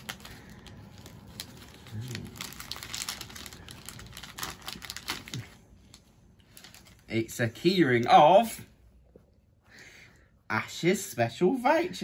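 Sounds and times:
paper wrapping crinkling and tearing: 0.0s - 7.4s.

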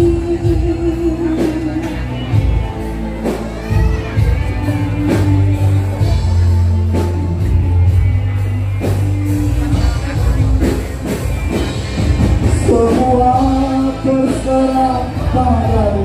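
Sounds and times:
loud amplified music with bass: 0.0s - 16.0s.

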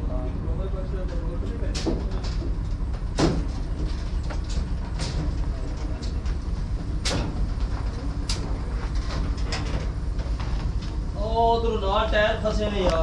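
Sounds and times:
heavy machine engine rumbling: 0.0s - 13.0s.

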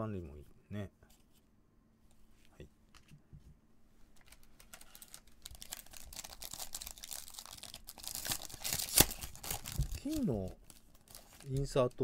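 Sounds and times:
foil wrapper crinkling: 4.2s - 12.0s.

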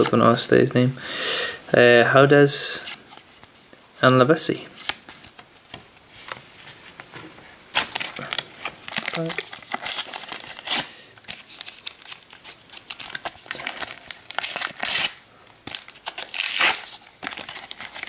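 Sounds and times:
foil wrapper crinkling and tearing: 7.7s - 18.0s.

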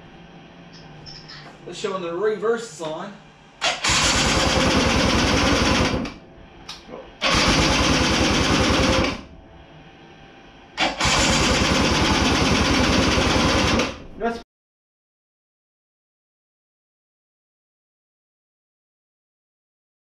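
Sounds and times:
electric starter cranking engine: 3.6s - 6.2s, 7.2s - 9.3s, 10.8s - 14.1s.

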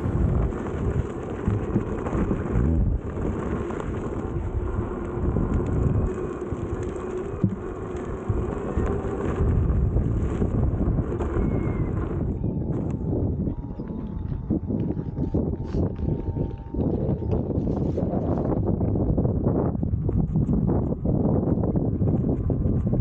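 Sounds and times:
tyre rumbling over dirt trail: 0.0s - 23.0s
wind buffeting microphone: 0.0s - 23.0s.

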